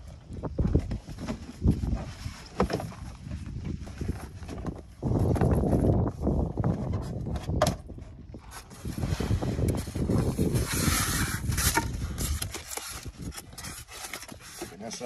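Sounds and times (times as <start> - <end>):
cardboard and styrofoam scraping: 8.4 - 15.0.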